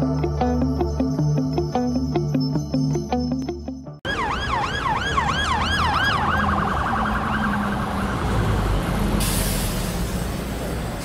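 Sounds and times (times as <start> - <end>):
street traffic: 3.4 - 11.0
emergency vehicle siren: 4.0 - 9.2.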